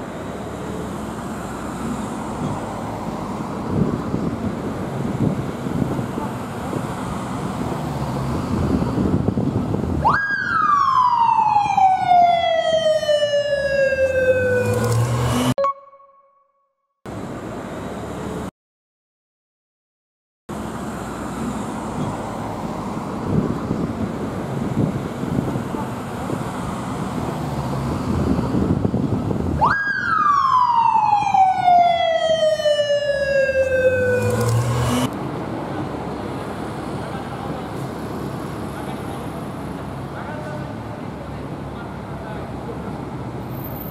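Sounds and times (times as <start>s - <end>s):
traffic noise: 0.0s - 15.7s, 17.1s - 18.5s, 20.5s - 43.9s
police siren wail: 10.0s - 16.1s, 29.6s - 35.1s.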